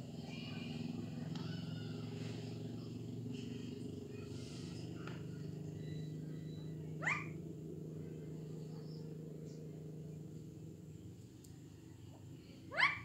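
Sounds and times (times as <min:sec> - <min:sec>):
steady low hum: 0:00.0 - 0:13.0
parakeet squawk: 0:07.0 - 0:07.4.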